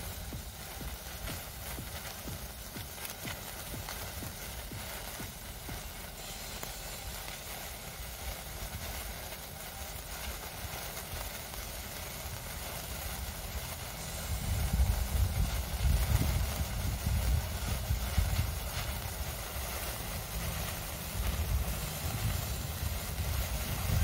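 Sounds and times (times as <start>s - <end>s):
sparkler fizzing and crackling: 0.0s - 24.0s
uneven low rumble: 14.0s - 24.0s.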